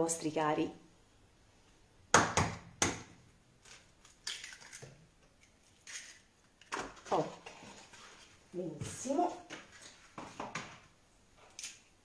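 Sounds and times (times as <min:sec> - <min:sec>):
eggshells clicking and rustling: 0:03.6 - 0:06.8.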